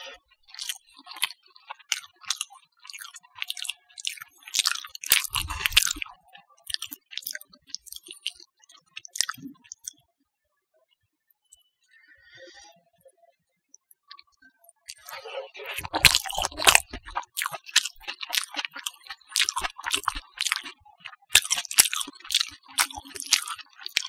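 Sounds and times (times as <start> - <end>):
eating by hand clicks: 0.5 - 6.1, 6.7 - 8.4, 9.0 - 10.0, 14.9 - 24.0.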